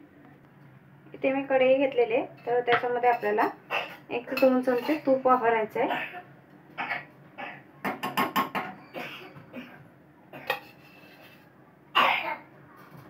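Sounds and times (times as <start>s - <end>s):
metal spoon clinking and scraping: 4.3s - 5.2s, 10.5s - 11.4s.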